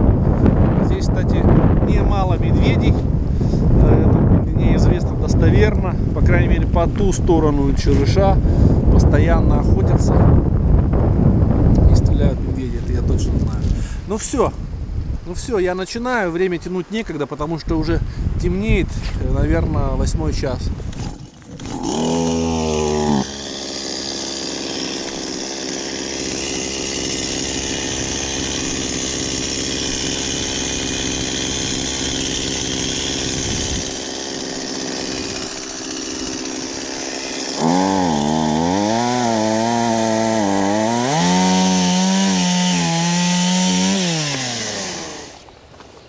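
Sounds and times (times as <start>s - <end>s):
chainsaw cutting firewood: 20.9s - 45.5s.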